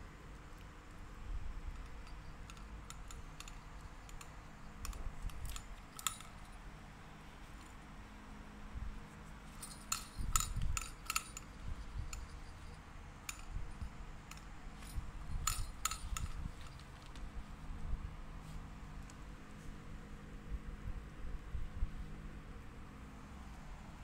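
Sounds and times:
toy clicking: 1.6s - 6.6s, 9.6s - 17.3s
treats rattling inside toy: 1.7s - 6.6s, 9.5s - 17.3s
small bell jingling: 1.7s - 6.7s, 9.5s - 17.1s.

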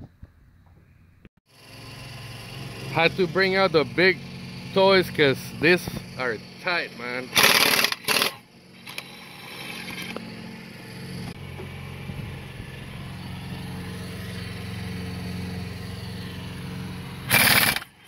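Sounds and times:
low mechanical hum: 0.1s - 18.0s
impact wrench hammering: 7.3s - 9.0s.

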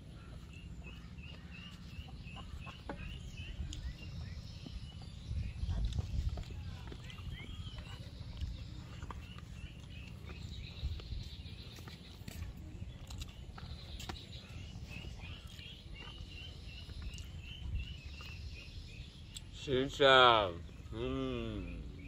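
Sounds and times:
bird chirping: 0.0s - 22.0s.

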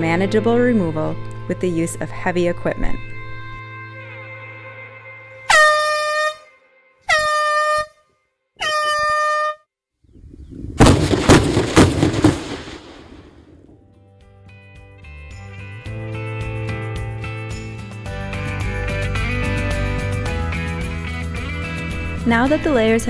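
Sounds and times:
warning horn blasts: 5.4s - 8.0s, 8.6s - 9.6s
blast rumble: 10.7s - 13.8s
explosive charges cracking: 10.7s - 13.8s.

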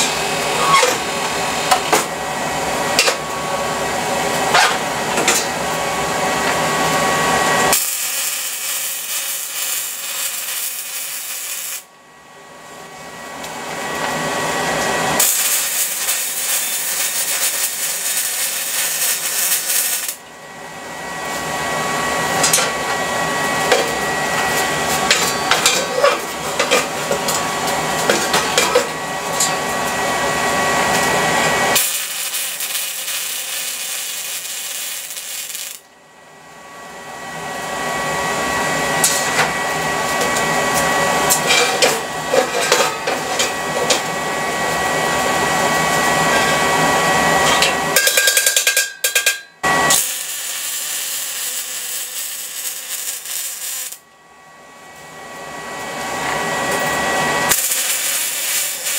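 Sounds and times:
welding arc crackling: 7.6s - 11.9s, 15.2s - 20.2s, 30.9s - 35.9s, 49.7s - 54.0s, 57.5s - 58.9s.

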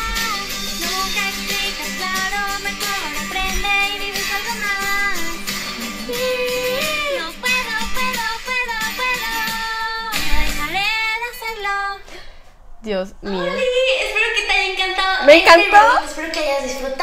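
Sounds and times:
backing track music: 0.0s - 11.0s
woman singing: 0.0s - 12.1s, 13.2s - 17.0s.

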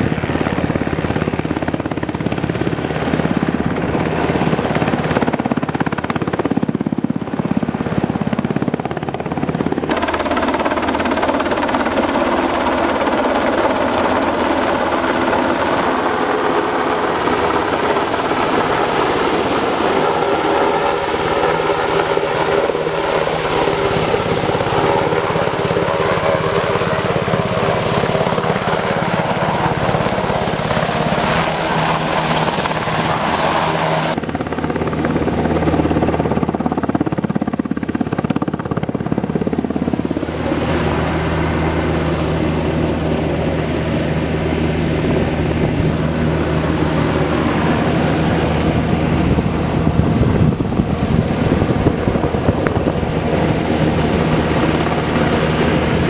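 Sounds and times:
helicopter hovering: 0.0s - 56.0s.

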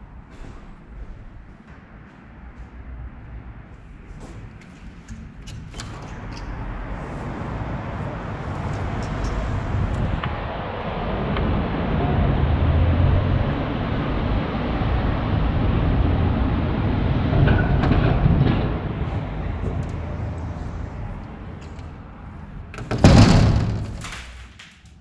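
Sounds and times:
train passing: 6.6s - 22.7s.

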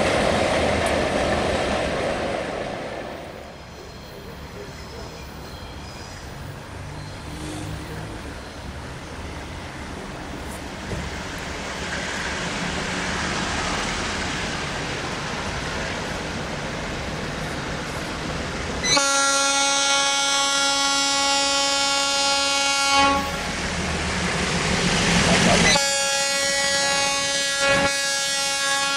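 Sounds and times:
diesel locomotive engine and wheels: 0.0s - 28.9s
locomotive horn: 18.8s - 23.6s, 25.6s - 28.9s.

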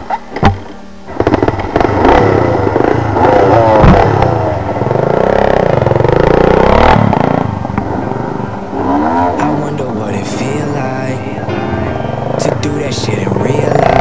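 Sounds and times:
dirt bike engine revving: 1.1s - 9.6s, 13.4s - 14.0s.

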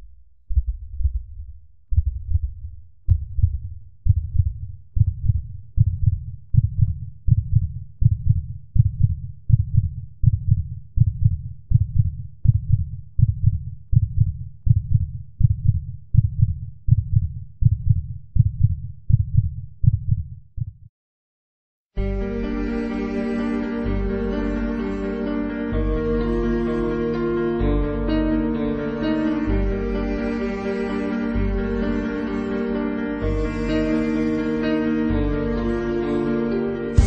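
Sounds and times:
heartbeat: 0.0s - 20.9s.

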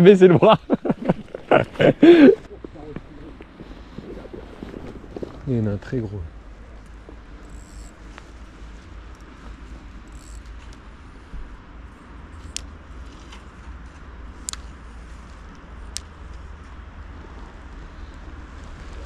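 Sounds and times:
wind rumbling on microphone: 1.0s - 5.6s.

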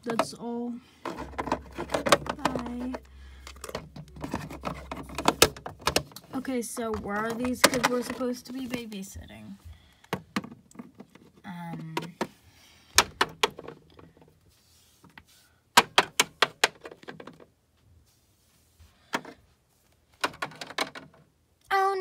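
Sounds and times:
plastic figurines tapping on plastic: 1.0s - 6.2s, 6.8s - 8.9s, 15.8s - 17.5s, 20.2s - 21.2s.

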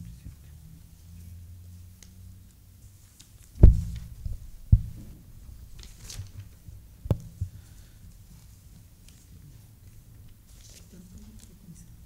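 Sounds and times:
paper rustle: 5.7s - 6.6s, 10.5s - 11.6s.

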